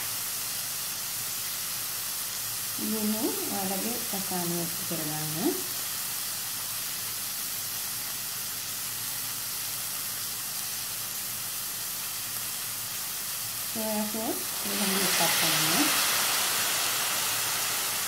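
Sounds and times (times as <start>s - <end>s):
food sizzling in oil: 0.0s - 18.0s
person speaking: 13.8s - 16.0s.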